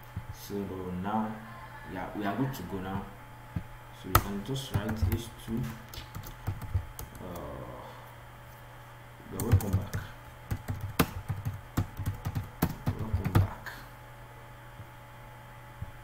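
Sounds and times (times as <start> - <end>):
computer keyboard typing: 4.2 - 7.5, 9.4 - 13.6.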